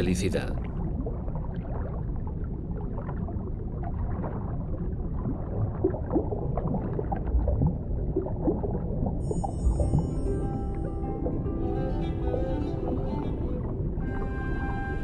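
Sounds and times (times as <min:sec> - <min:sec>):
low underwater rumble: 0:00.0 - 0:15.0
water bubbling and gurgling: 0:00.0 - 0:15.0.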